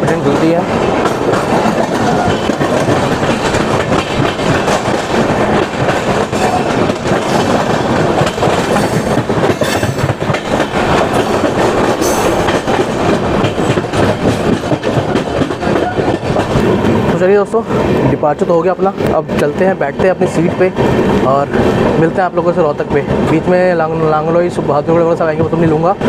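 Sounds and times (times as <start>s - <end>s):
wheels clattering over rail joints: 0.0s - 18.1s
train rumble: 0.0s - 26.0s.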